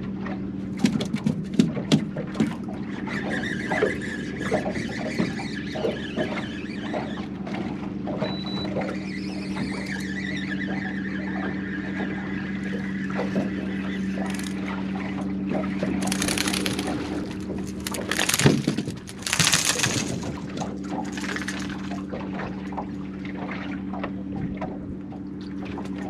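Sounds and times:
fish splashing at water surface: 0:14.1 - 0:15.0, 0:15.6 - 0:22.9.

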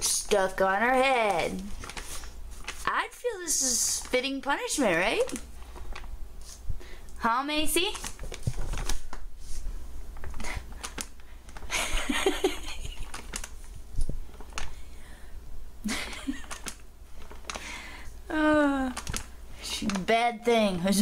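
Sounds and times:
paper bag rustling: 0:01.7 - 0:02.9, 0:07.9 - 0:10.3.

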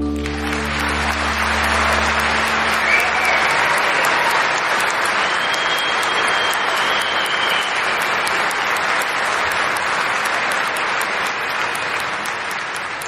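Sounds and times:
concert audience applauding: 0:00.0 - 0:13.0
long high whistle: 0:02.7 - 0:04.1, 0:05.1 - 0:08.0.

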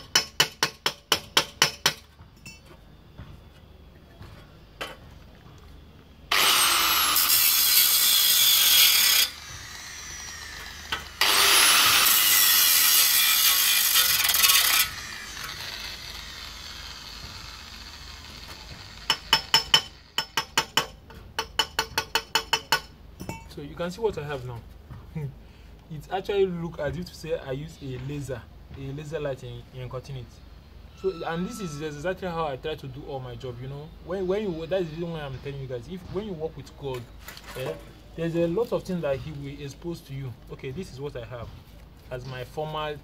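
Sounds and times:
angle grinder cutting metal: 0:06.3 - 0:20.5, 0:30.9 - 0:32.0.

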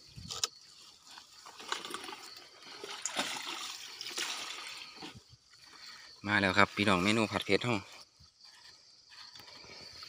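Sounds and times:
water splashing and trickling: 0:00.8 - 0:07.8.

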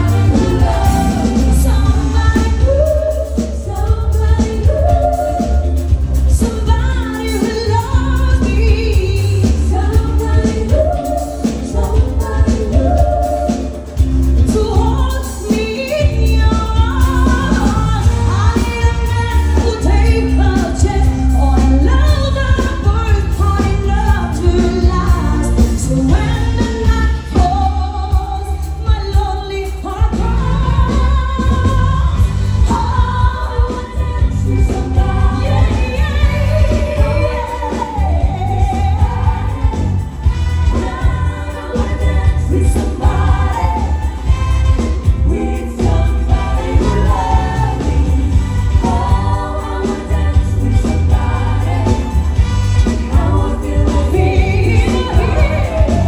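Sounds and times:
band playing: 0:00.0 - 0:56.0
steady bass line: 0:00.0 - 0:56.0
woman singing: 0:00.0 - 0:56.0.

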